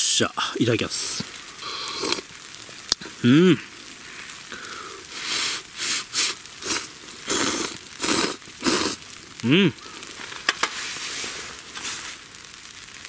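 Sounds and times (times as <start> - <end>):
person slurping noodles: 1.6 - 2.3, 4.6 - 9.8.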